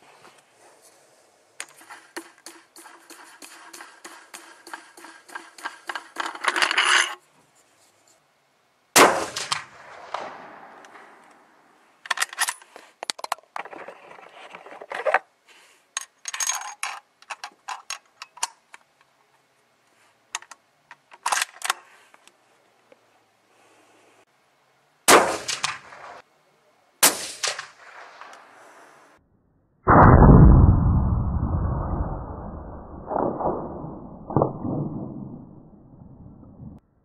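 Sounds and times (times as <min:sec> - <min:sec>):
rifle shot: 0:09.0 - 0:11.7, 0:25.1 - 0:26.2, 0:27.0 - 0:28.6, 0:29.9 - 0:31.0, 0:33.0 - 0:35.3.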